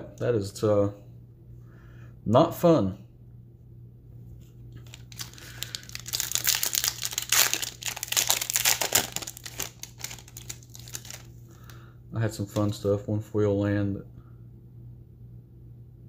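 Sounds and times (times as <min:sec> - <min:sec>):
foil wrapper tearing and crinkling: 0:04.8 - 0:11.3.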